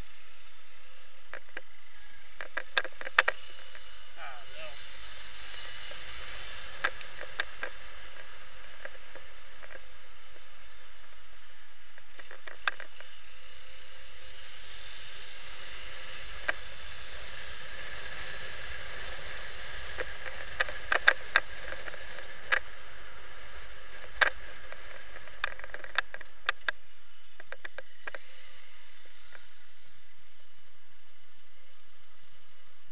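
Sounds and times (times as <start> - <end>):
muffled wind hiss: 0.0 - 32.9.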